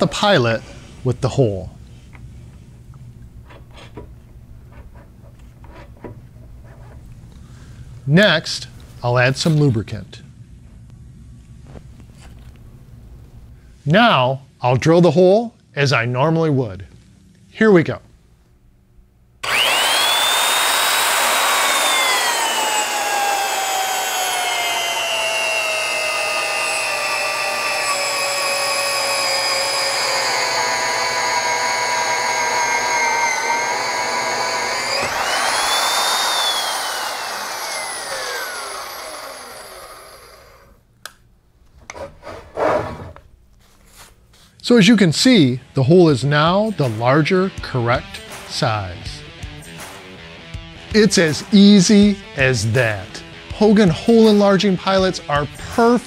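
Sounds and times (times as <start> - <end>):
cutter drilling through steel: 19.4 - 40.7
magnetic drill motor whining: 19.4 - 40.7.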